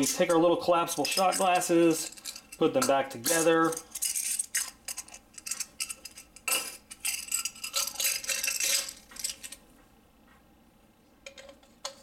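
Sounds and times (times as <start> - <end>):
shot glasses clicking and rattling: 1.0 - 9.6.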